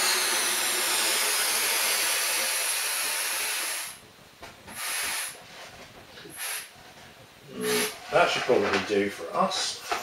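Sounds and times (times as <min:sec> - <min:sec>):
helium hissing into balloon: 0:04.7 - 0:05.4.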